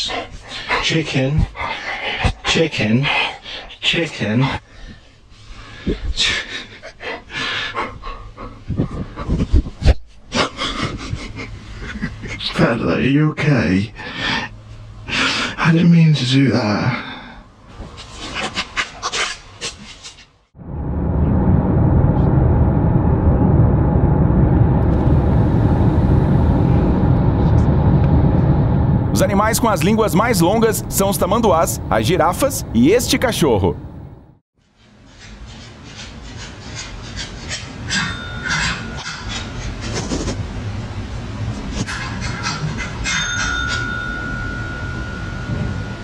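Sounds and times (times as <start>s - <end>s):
low thumps: 20.6s - 31.1s
car low rumble: 20.6s - 34.4s.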